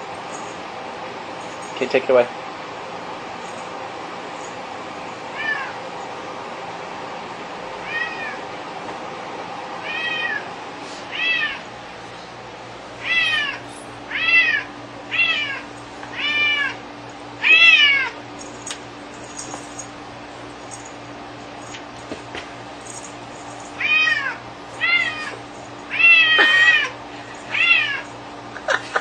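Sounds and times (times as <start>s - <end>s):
cat meowing: 5.3s - 5.8s, 7.8s - 8.4s, 9.8s - 10.5s, 11.1s - 11.6s, 13.0s - 16.8s, 17.4s - 18.2s, 23.8s - 28.1s.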